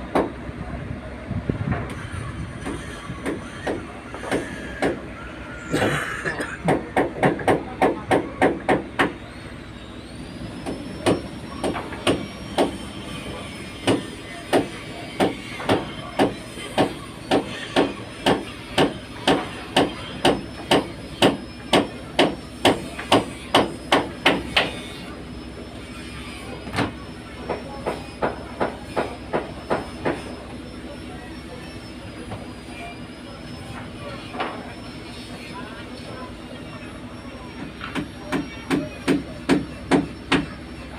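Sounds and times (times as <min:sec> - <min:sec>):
hammer blows: 0:01.7 - 0:09.2, 0:10.6 - 0:24.9.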